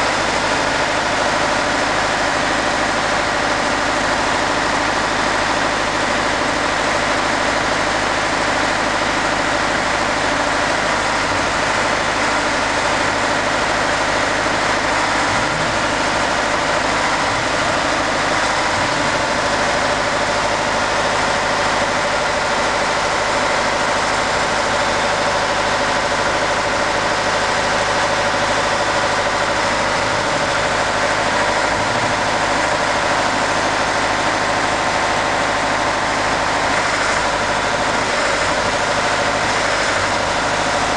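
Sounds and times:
heavy engine idling: 0:00.0 - 0:40.9.

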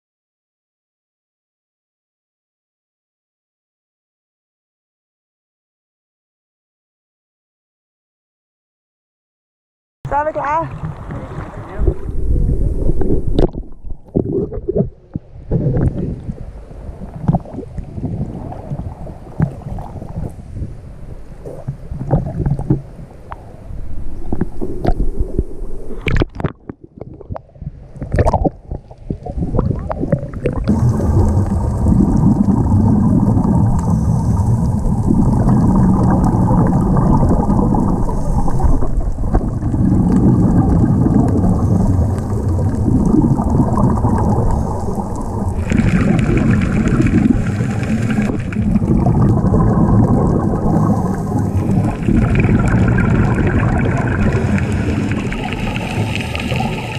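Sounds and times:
regulator bubbles gurgling: 0:10.1 - 0:20.8, 0:21.4 - 0:56.9
muffled underwater rumble: 0:10.1 - 0:56.9
seawater splashing against camera: 0:21.4 - 0:56.9.

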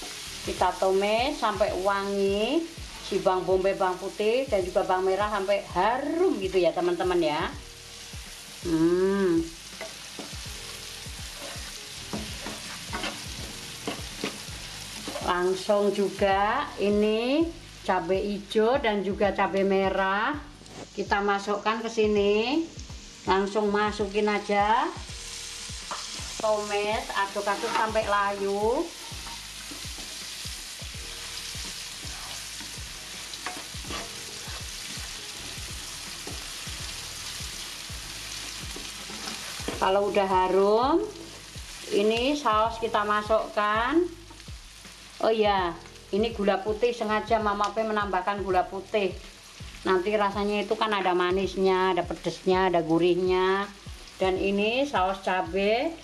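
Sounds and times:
onions sizzling in hot oil: 0:00.0 - 0:56.0
spatula scraping pan: 0:11.2 - 0:15.3, 0:27.3 - 0:28.1, 0:31.2 - 0:36.8, 0:38.4 - 0:39.8.

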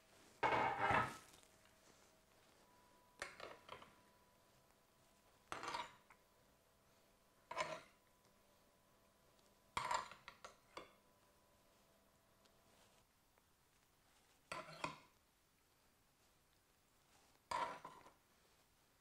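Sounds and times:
metal spoon scraping a grill pan: 0:07.5 - 0:08.0, 0:14.5 - 0:15.0, 0:17.5 - 0:18.1.

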